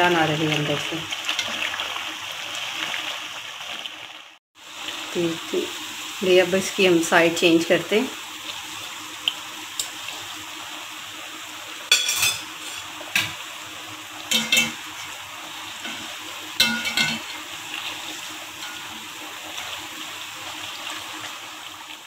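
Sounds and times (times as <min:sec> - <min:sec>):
bread deep-frying in sizzling oil: 0:00.0 - 0:22.0
metal tongs clattering on a wok: 0:11.9 - 0:13.4, 0:14.3 - 0:14.8, 0:16.6 - 0:17.5, 0:18.6 - 0:19.0.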